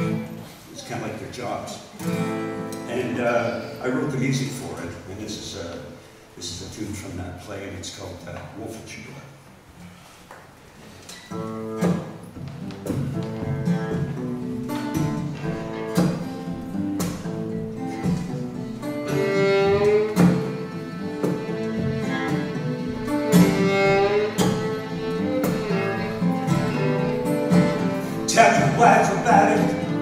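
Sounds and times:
acoustic guitar strummed chords: 0.0s - 0.5s, 11.4s - 30.0s
fiddle bowed notes: 18.6s - 30.0s.

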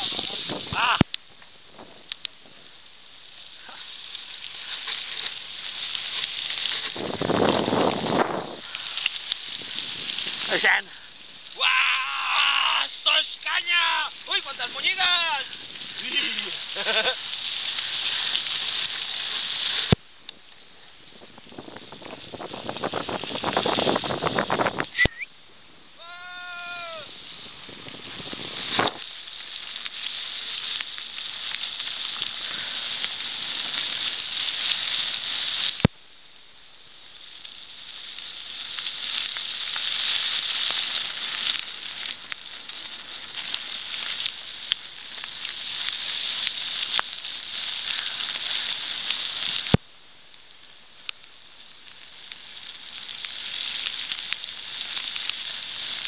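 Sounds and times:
bike tyres rolling over wet gravel: 0.0s - 56.0s
rain: 0.0s - 56.0s
short high squeal: 24.9s - 25.3s.

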